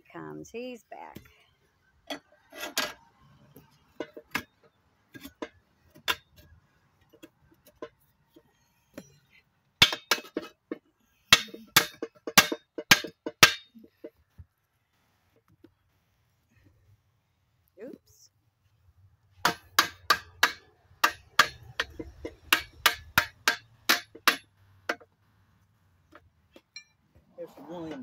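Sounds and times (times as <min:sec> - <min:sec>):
metal clinks of tire iron on rim: 0:19.5 - 0:25.1, 0:26.6 - 0:27.0.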